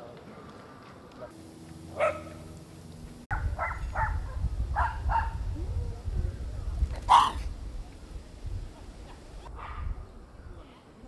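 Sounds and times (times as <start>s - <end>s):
low rumble: 1.3s - 10.4s
dogs barking: 1.9s - 2.4s, 3.3s - 5.4s, 7.0s - 7.5s.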